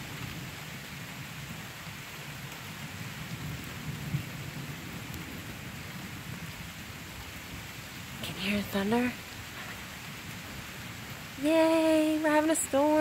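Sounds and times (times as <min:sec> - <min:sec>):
steady rain: 0:00.0 - 0:13.0
thunder rumbling: 0:03.2 - 0:13.0.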